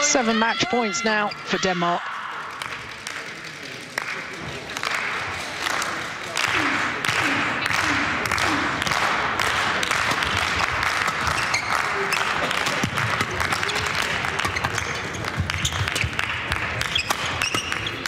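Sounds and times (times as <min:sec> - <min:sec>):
spectators clapping: 0:02.0 - 0:18.0
rackets hitting shuttlecock: 0:08.8 - 0:18.0.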